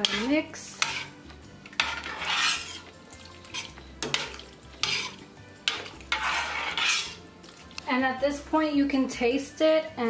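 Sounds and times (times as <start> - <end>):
spoon clinking against pot: 0.0 - 7.2
liquid sloshing in a pot: 0.0 - 7.9.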